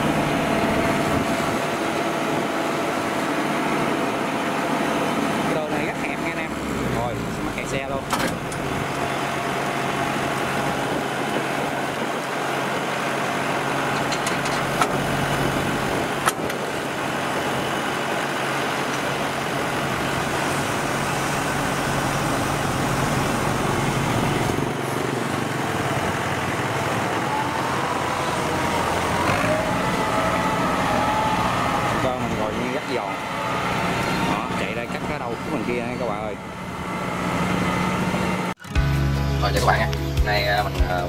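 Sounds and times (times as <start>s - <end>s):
diesel engine running: 0.0s - 41.0s.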